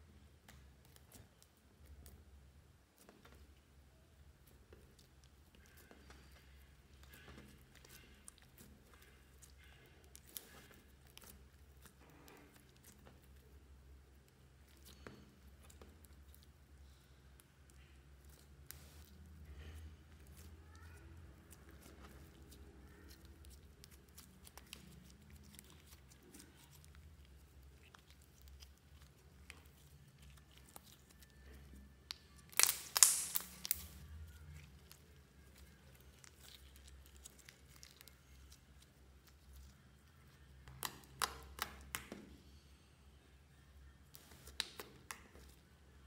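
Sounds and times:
slime crackling pops: 0:32.1 - 0:34.0
slime sticky clicks: 0:32.1 - 0:34.0.

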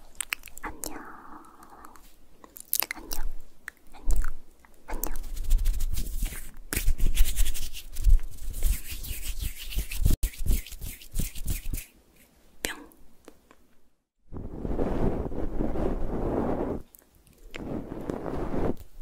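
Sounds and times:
fingertips rubbing on microphone: 0:04.9 - 0:11.9, 0:14.5 - 0:19.0.

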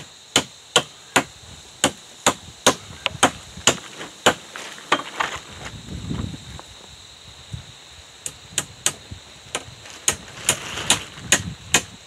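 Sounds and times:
hammer striking nails into logs: 0:00.0 - 0:05.1.

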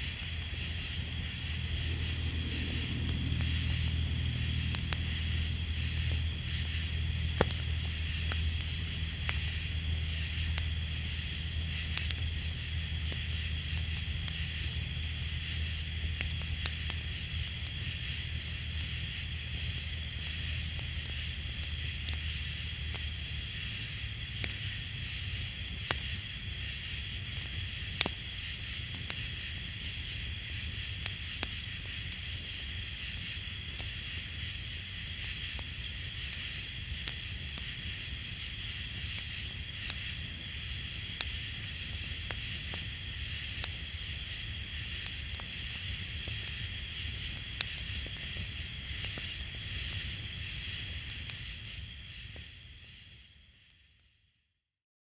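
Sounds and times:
crickets chirping: 0:00.0 - 0:54.5
low rumble: 0:00.1 - 0:11.6.

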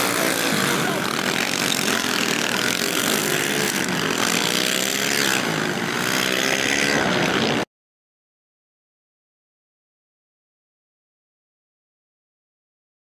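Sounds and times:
pit bike engines revving: 0:00.0 - 0:07.7.

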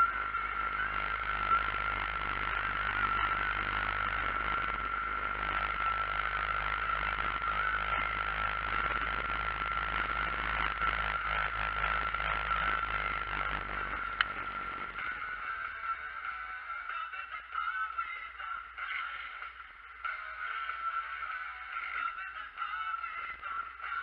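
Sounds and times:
combine harvester engine drone: 0:00.0 - 0:15.1
high machinery whine: 0:00.0 - 0:16.2.

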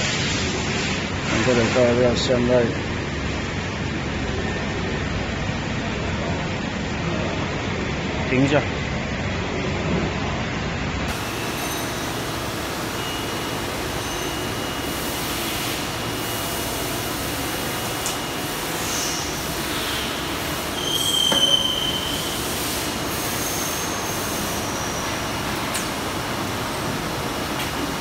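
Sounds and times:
factory machinery hiss and rumble: 0:00.0 - 0:28.0
high-pitched machine squeals: 0:11.1 - 0:16.4, 0:18.1 - 0:25.3.

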